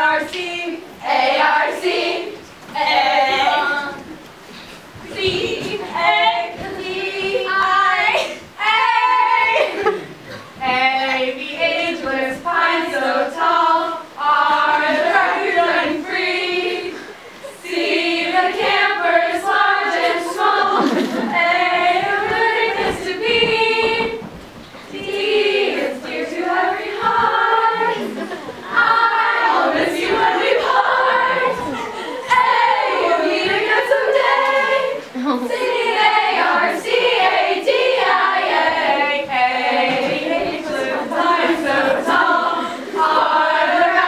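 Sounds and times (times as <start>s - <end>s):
girls singing in unison: 0.0s - 44.0s.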